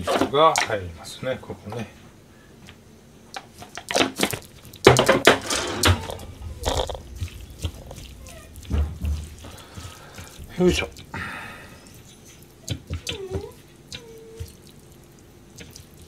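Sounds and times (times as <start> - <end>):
hands slapping wet chicken skin: 7.3 - 16.0.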